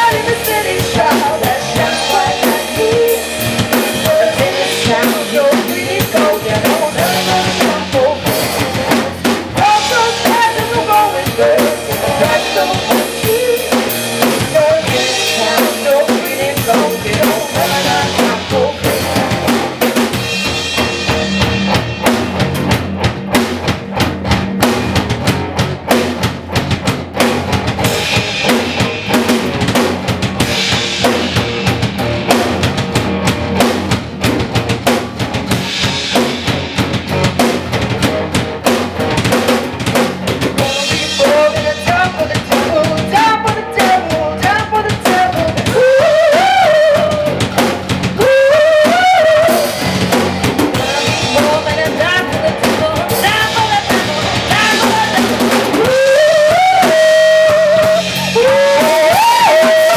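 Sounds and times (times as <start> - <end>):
rock band playing live: 0.0 - 59.9.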